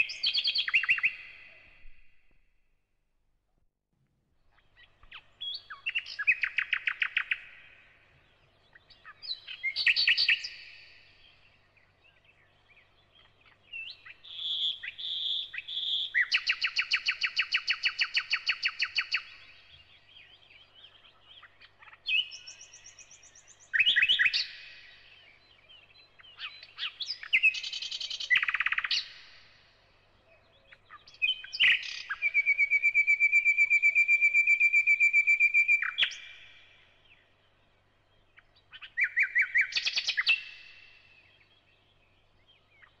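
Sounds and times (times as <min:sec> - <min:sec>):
songbird trilling: 0:00.0 - 0:01.4, 0:12.8 - 0:29.4, 0:30.4 - 0:36.5, 0:38.6 - 0:41.4.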